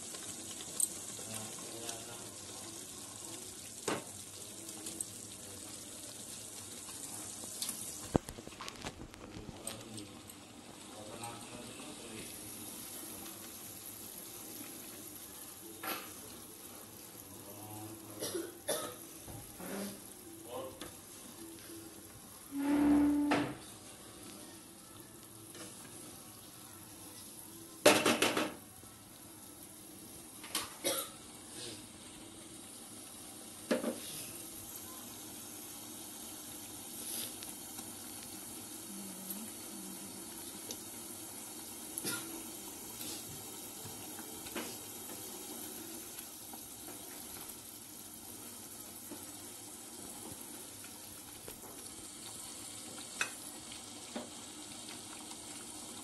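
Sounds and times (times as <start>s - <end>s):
soft sizzle: 0.0s - 56.0s
wooden spatula scraping a pan: 22.5s - 23.4s.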